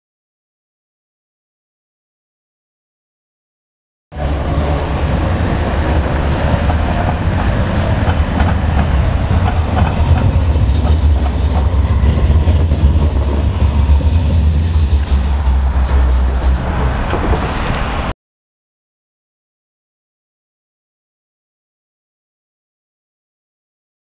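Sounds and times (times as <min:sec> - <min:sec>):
low rumble of passing tram: 0:04.1 - 0:18.1
tram wheels clicking over rails: 0:04.2 - 0:18.1.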